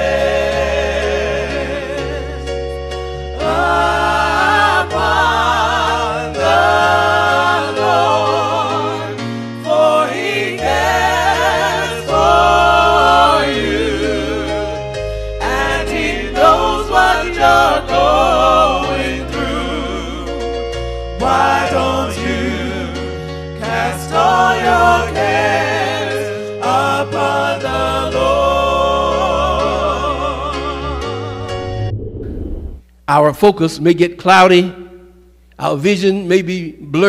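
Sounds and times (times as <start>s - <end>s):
voices singing held notes: 0.0s - 2.5s, 3.3s - 20.4s, 21.2s - 31.5s
sustained bass notes: 30.9s - 33.8s.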